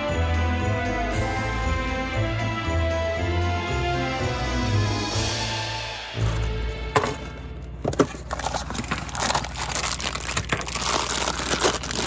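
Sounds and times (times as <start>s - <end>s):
cardboard box being opened: 7.8s - 12.0s
plastic bags crinkling: 7.8s - 12.0s.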